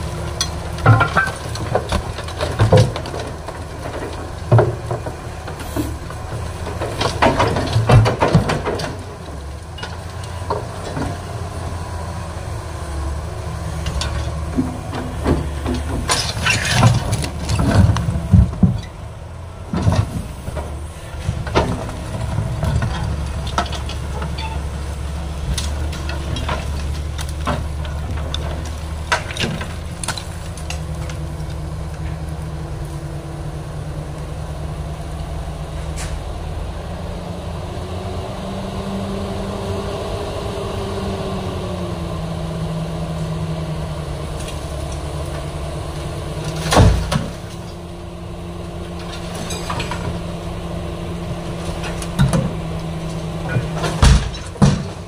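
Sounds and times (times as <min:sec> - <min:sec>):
excavator diesel engine: 0:00.0 - 0:55.0
metallic clanks of scrap: 0:15.3 - 0:17.9, 0:49.0 - 0:50.2.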